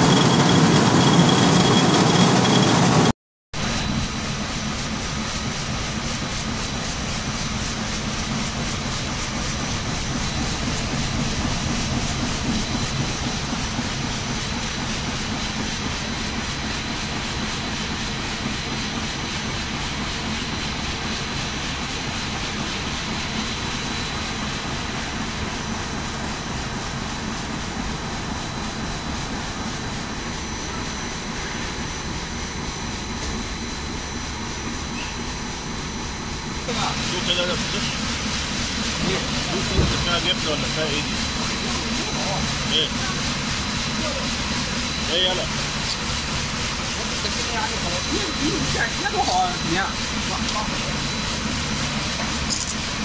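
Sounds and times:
machinery roaring: 0.0s - 6.9s, 26.0s - 53.0s.

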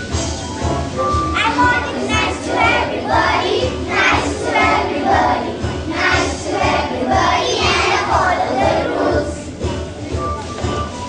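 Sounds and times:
backing music with low beat: 0.0s - 11.0s
children singing: 1.4s - 9.6s.

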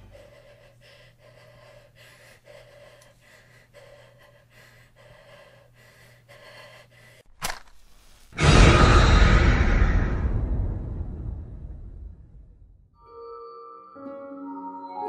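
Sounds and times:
quick frightened breathing: 0.0s - 7.3s.

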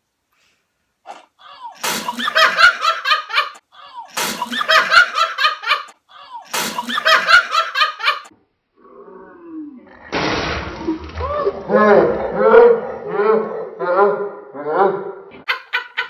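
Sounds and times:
sharp crack: 10.1s - 11.6s.

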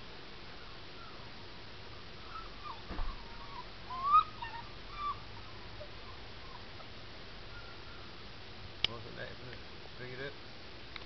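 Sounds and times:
puppy whining: 2.2s - 6.8s.

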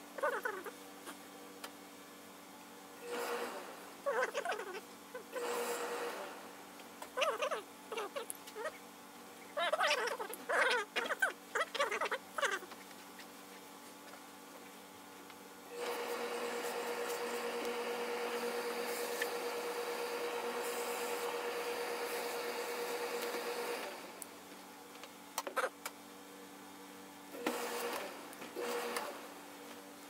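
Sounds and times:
steam iron hissing: 3.1s - 3.8s, 15.8s - 24.1s.

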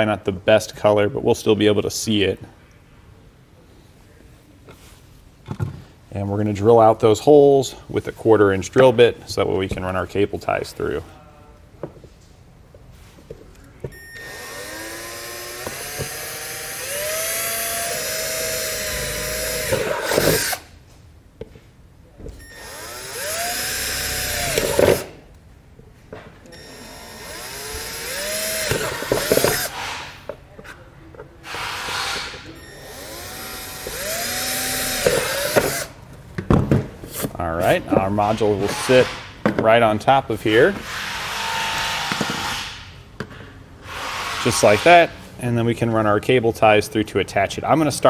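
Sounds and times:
cordless drill whining: 13.9s - 20.7s, 22.4s - 25.2s, 26.5s - 30.1s, 31.4s - 36.0s.

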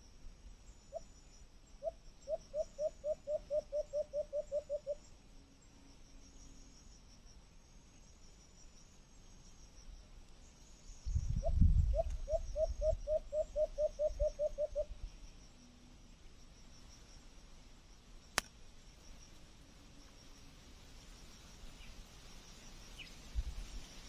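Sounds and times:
insects chirring: 0.0s - 24.0s
sharp click: 18.3s - 18.6s.

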